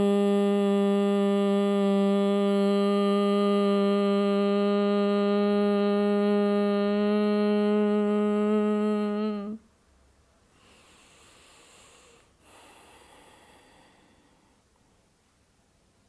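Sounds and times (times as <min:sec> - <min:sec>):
woman humming: 0:00.0 - 0:09.7
faint breaths: 0:10.4 - 0:15.2.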